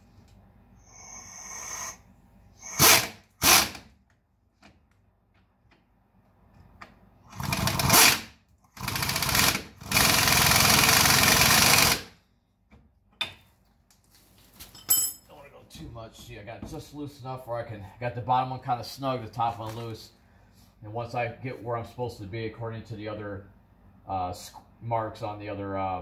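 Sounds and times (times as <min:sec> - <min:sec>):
air ratchet bursts: 0:02.6 - 0:03.8, 0:07.3 - 0:12.2.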